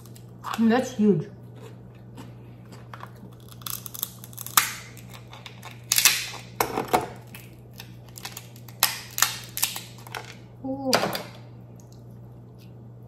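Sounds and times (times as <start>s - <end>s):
crab shell cracking: 2.8s - 10.4s.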